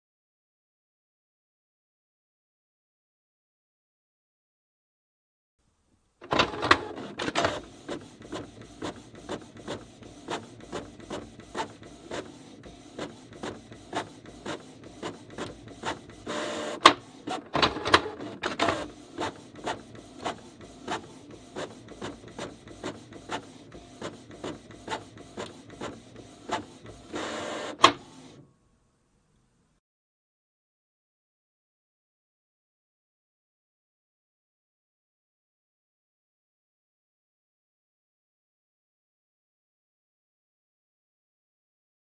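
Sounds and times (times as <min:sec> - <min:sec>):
printer mechanical clicks: 0:06.2 - 0:28.4
printer mechanism noise: 0:06.2 - 0:28.4.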